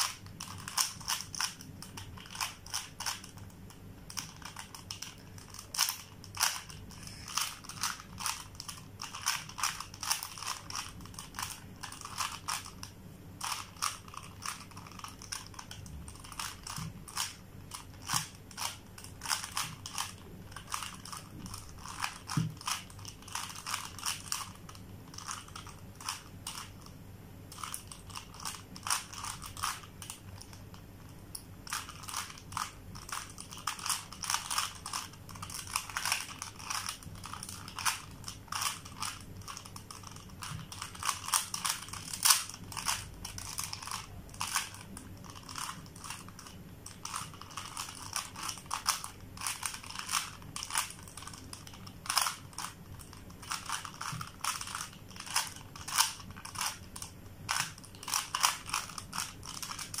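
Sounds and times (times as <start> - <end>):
puzzle cube clicking as turned: 0.0 - 3.4, 4.1 - 12.8, 13.4 - 26.7, 27.6 - 30.6, 31.7 - 60.0.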